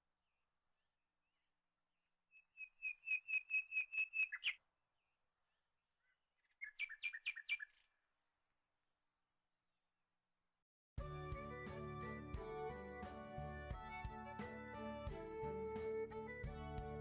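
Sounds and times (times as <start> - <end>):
bird chirping: 2.3 - 4.7, 5.5 - 8.1.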